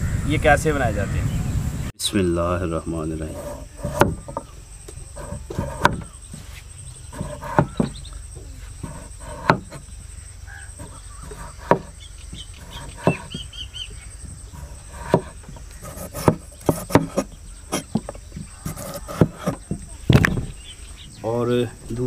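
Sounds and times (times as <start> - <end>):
insect drone: 0.0 - 22.0
bird chirps: 2.8 - 22.0
knife chopping on wooden board: 3.4 - 4.5, 5.2 - 6.2, 7.2 - 8.0, 8.8 - 9.9, 10.8 - 13.4, 14.2 - 20.4.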